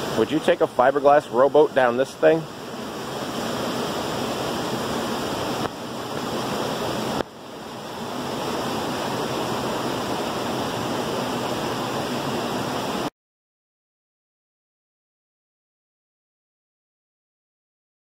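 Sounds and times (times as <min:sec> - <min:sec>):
creek rushing over boulders: 0:00.0 - 0:13.1.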